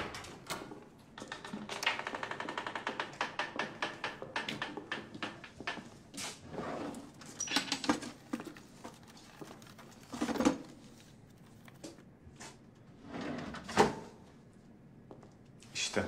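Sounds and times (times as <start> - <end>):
papers rustling: 6.9 - 12.9.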